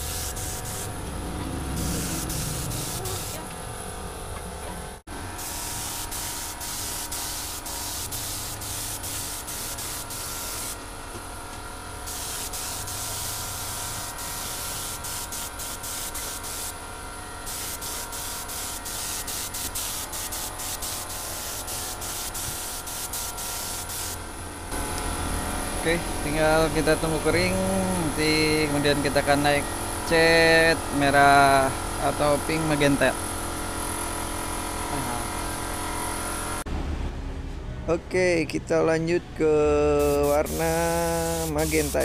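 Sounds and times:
spray gun hissing: 0.0s - 1.0s, 1.8s - 3.4s, 5.4s - 10.8s, 12.0s - 16.8s, 17.4s - 24.2s, 40.0s - 42.0s.

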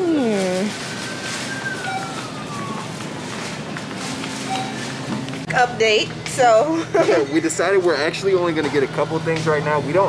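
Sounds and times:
grocery store ambience: 0.0s - 10.0s
faint music playing: 5.4s - 10.0s.

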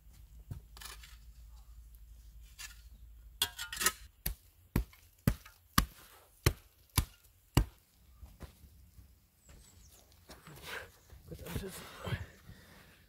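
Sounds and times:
axe chopping into earth: 4.2s - 7.8s.

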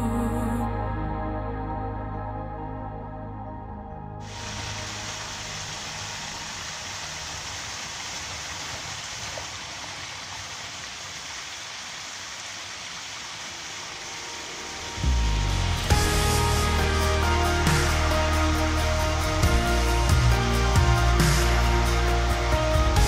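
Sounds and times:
music: 0.0s - 7.6s, 14.1s - 23.0s
stream water running over stone: 4.2s - 20.8s.

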